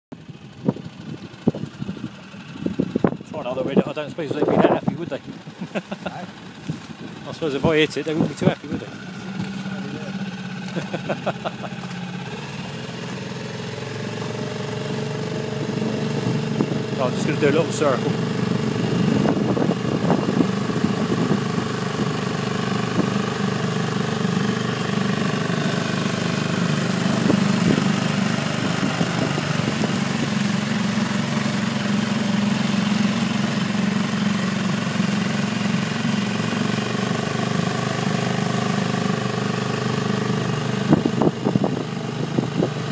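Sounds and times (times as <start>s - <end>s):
outboard motor droning: 0.1s - 42.9s.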